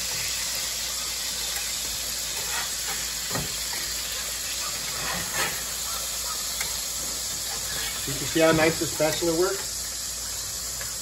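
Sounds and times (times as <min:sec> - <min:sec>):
meat sizzling in skillet: 0:00.0 - 0:11.0.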